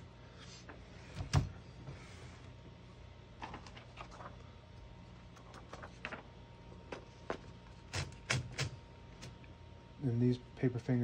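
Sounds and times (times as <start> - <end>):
typewriter clicks and knocks: 7.9 - 9.3.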